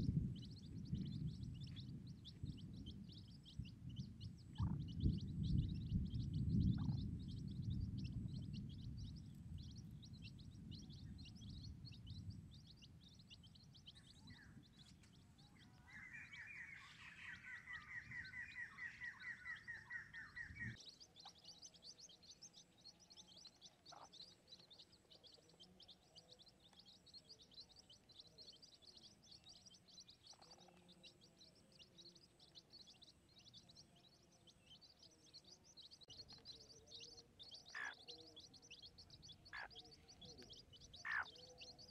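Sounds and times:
low rumble: 0.0s - 16.9s.

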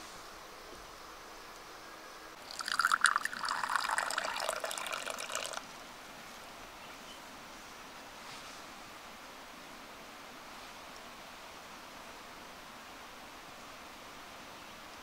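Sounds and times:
water pouring and splashing: 2.4s - 5.6s.

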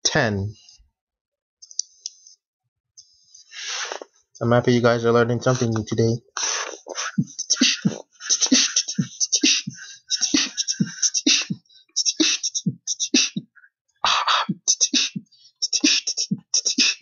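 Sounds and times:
beatbox kick thumps: 6.9s - 17.0s.

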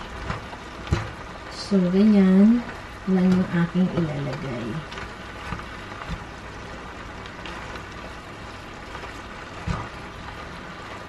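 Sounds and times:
food sizzling in frying pan: 0.0s - 11.0s
spatula knocking pan: 0.1s - 1.3s.

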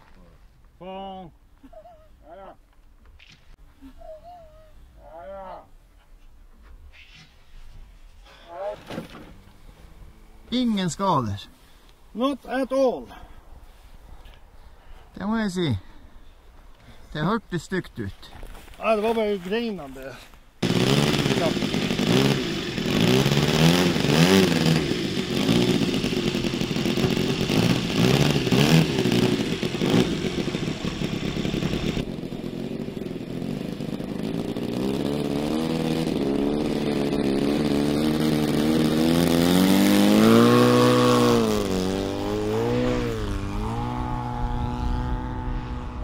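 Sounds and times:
model airplane engine buzzing: 20.6s - 46.0s.

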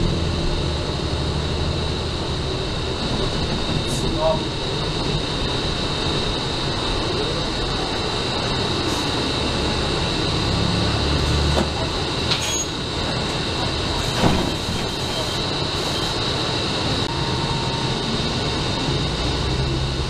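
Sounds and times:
bus engine and road noise: 0.0s - 20.0s
constant high whine: 0.0s - 20.0s.

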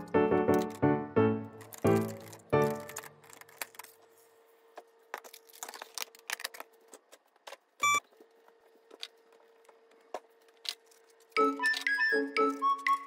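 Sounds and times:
plastic parts clicking and clattering: 0.0s - 0.8s, 1.6s - 4.1s, 5.1s - 7.9s, 8.9s - 13.0s.

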